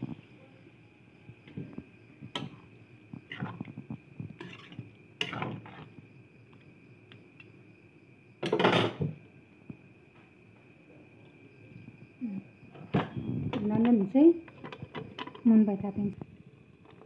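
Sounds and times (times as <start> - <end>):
metal spoon scraping a wok: 4.4 - 5.9.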